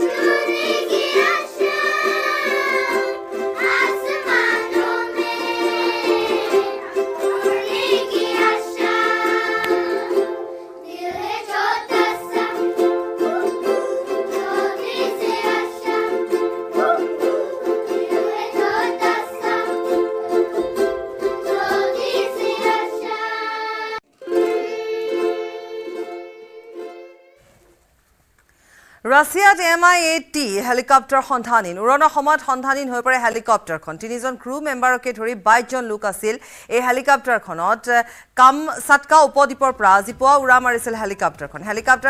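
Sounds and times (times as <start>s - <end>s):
children singing: 0.0s - 27.3s
ukuleles strumming: 0.0s - 27.5s.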